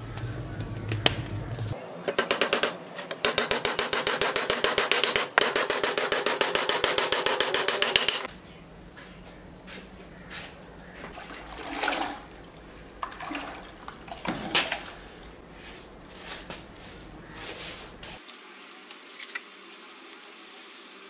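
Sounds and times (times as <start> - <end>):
hammer driving nails into wood: 2.1 - 8.3.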